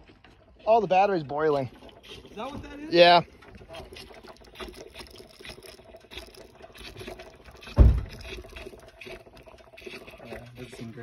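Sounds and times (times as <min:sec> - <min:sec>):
low thump: 0:07.8 - 0:08.2.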